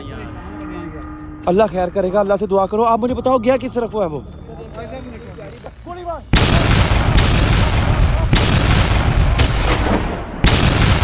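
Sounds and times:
booming gunshots: 6.3s - 11.0s.

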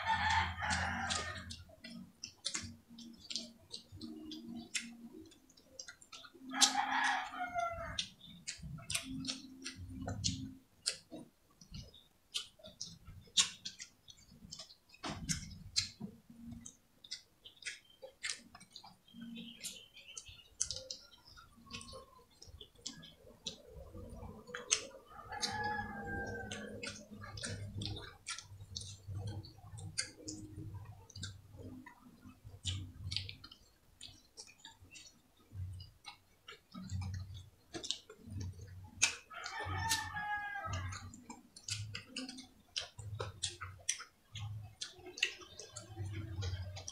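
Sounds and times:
chewing: 0.0s - 46.9s
wet mouth and finger clicks: 0.0s - 46.9s
rooster crowing: 39.4s - 41.0s.

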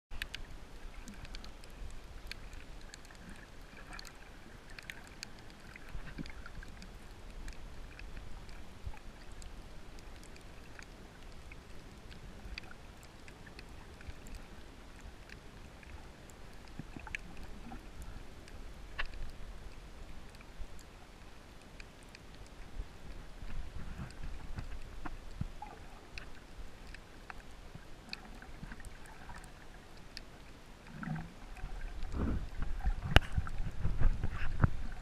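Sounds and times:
underwater clicks and crackles: 0.1s - 35.0s
underwater water rumble: 0.1s - 35.0s.

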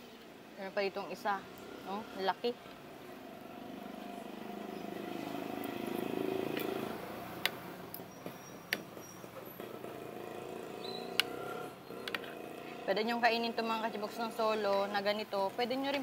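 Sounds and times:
passing vehicle engine hum: 3.1s - 7.9s.

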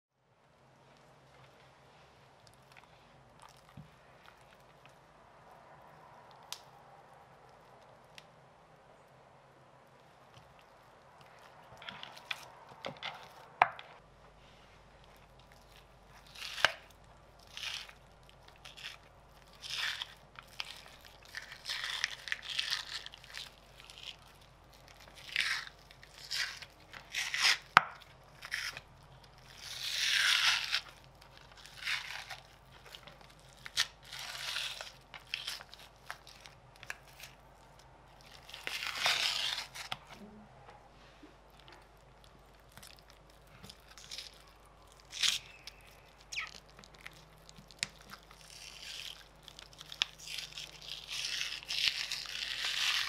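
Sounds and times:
membrane tearing from ribs: 15.1s - 40.2s, 41.6s - 53.0s.

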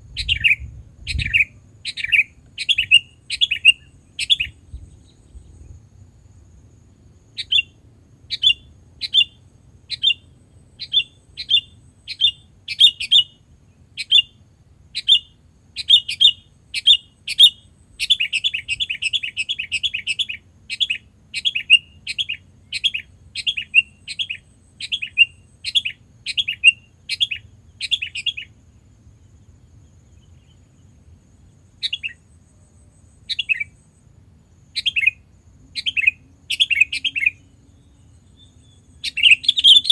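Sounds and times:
bird chirping and chattering: 39.0s - 39.9s.

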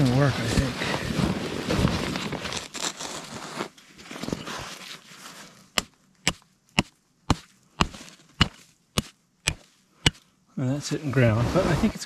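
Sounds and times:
soft rustling: 0.5s - 5.8s
metal stake being pounded: 5.8s - 10.2s.

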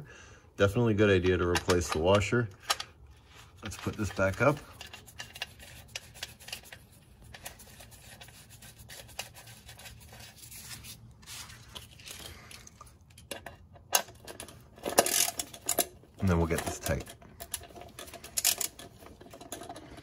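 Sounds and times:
rubbing and scraping: 3.1s - 20.0s.

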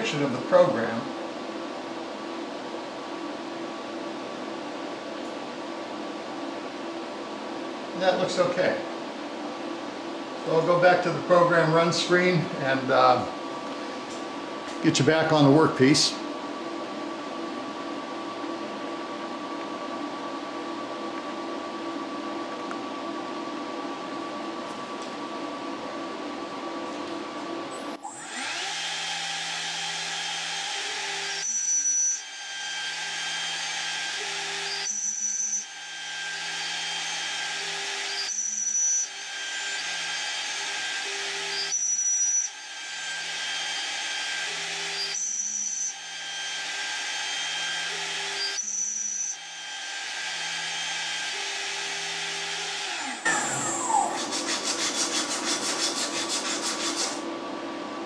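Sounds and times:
spindle cutting wood whine: 27.8s - 57.2s.

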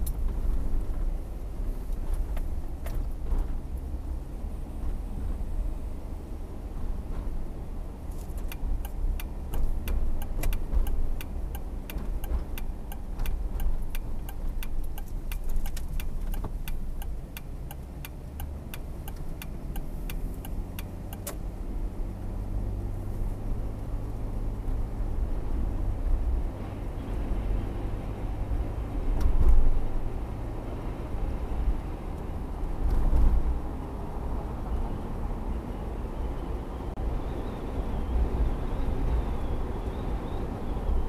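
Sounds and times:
car road and engine rumble: 0.0s - 41.0s
turn signal clicking: 8.3s - 21.4s.

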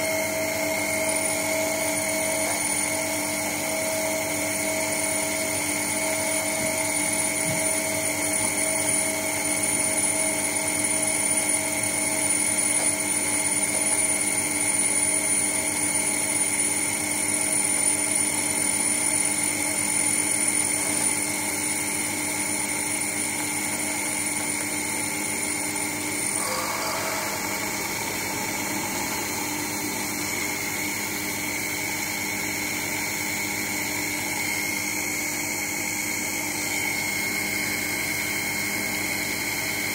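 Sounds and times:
lathe motor whining: 0.0s - 39.1s
thin high-pitched tone: 26.3s - 31.3s.

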